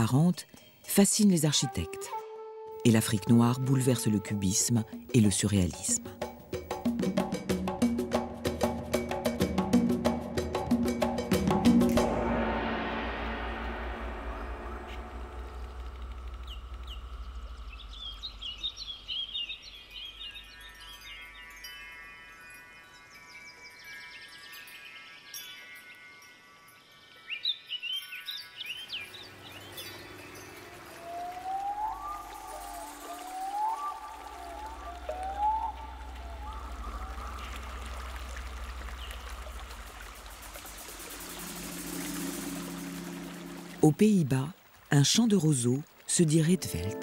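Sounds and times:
low drone: 11.5s - 19.1s, 29.3s - 44.0s
even rushing noise: 11.8s - 17.7s, 40.1s - 44.0s
low held chord: 11.8s - 18.6s, 40.7s - 44.0s
low pulsing hum: 12.0s - 19.0s, 33.9s - 43.8s
ringing chime-like tones: 19.7s - 34.5s, 41.0s - 43.9s
gliding tones: 39.9s - 44.0s.

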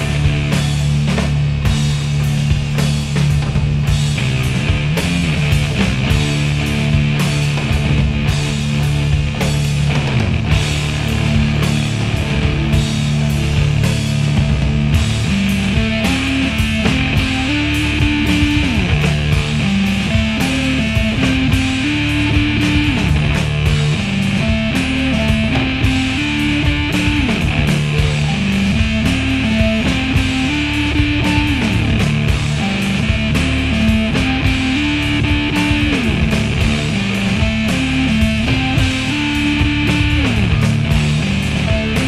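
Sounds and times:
rock music with electric guitar: 0.0s - 42.0s.

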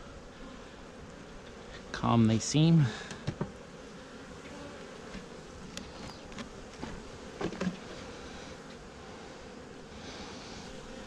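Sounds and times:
bees buzzing: 0.0s - 11.0s.

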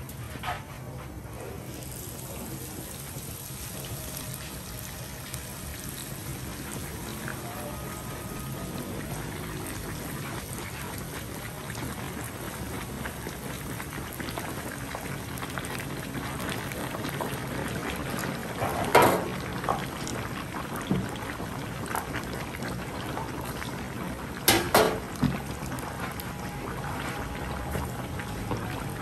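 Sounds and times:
oil bubbling and sizzling: 0.3s - 29.0s
sharp cracks from frying: 16.7s - 22.4s, 24.4s - 25.4s.

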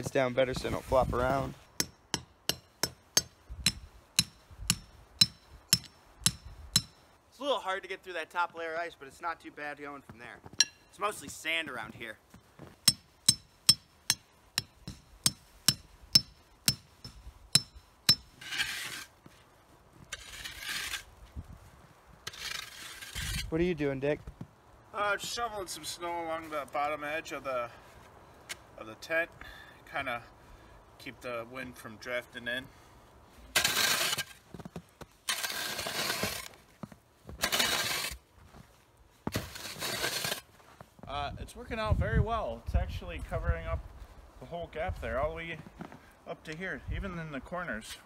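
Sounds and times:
shovel scraping snow: 0.1s - 1.7s, 18.2s - 21.3s, 22.2s - 23.5s, 33.4s - 36.7s, 37.3s - 40.9s
hammer striking metal stake: 1.8s - 7.1s, 10.6s - 11.0s, 12.8s - 18.7s.

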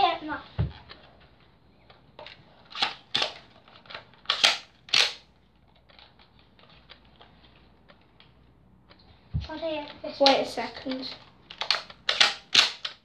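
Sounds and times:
plastic toy blaster clacks: 2.7s - 5.2s, 10.2s - 13.0s.

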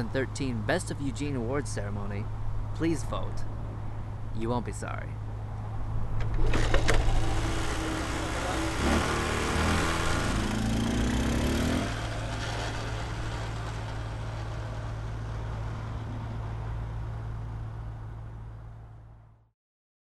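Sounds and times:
motorbike engine revving: 6.3s - 16.2s.

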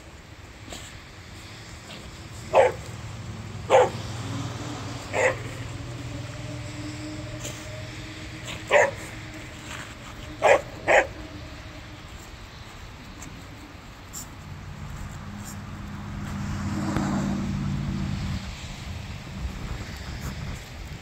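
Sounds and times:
dog barking: 2.5s - 2.9s, 3.7s - 4.1s, 5.0s - 5.8s, 8.5s - 9.2s, 10.4s - 11.3s.

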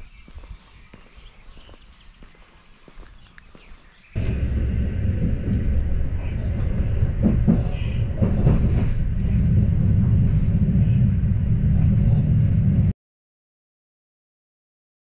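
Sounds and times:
knocks: 4.2s - 12.9s
moving vehicle rumble: 4.2s - 13.0s.

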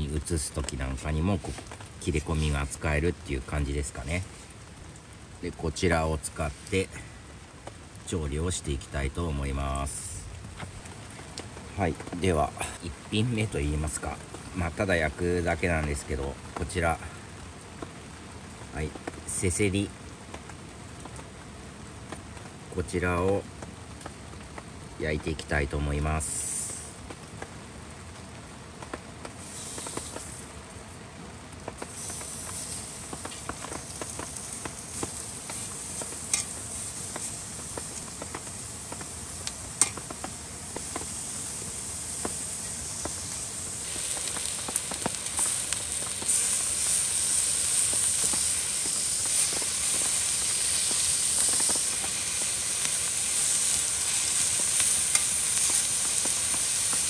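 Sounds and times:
meat sizzling on griddle: 26.2s - 27.0s, 29.3s - 30.9s, 31.7s - 57.0s.

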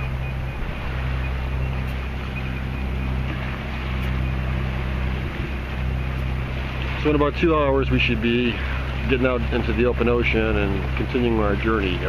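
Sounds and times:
faint rapid alarm beeps: 0.0s - 3.2s
boat engine humming: 0.0s - 12.0s
rushing water: 0.0s - 12.0s
wind: 0.0s - 12.0s.

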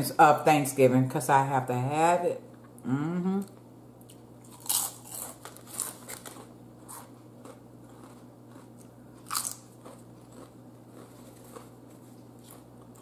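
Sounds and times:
chips crunching while chewed: 4.1s - 13.0s.

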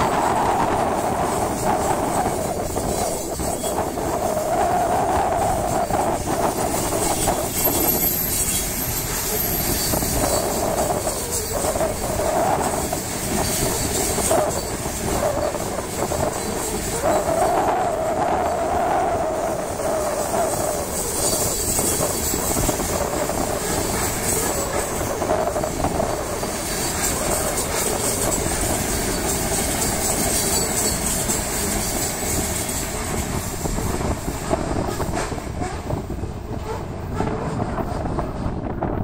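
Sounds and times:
freight train rolling past: 0.0s - 39.0s
wheels clattering over rail joints: 0.0s - 39.0s.

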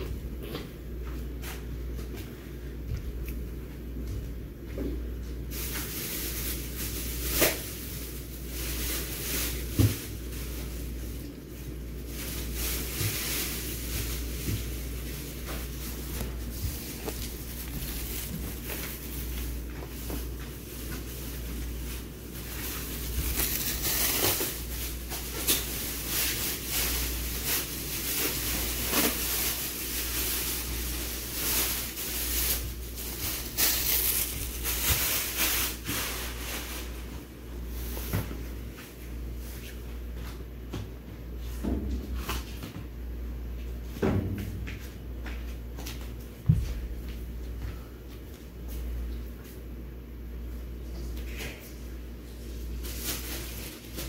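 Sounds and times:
room noise hum and hiss: 0.0s - 54.0s
soft rustles of handling: 0.4s - 40.5s.

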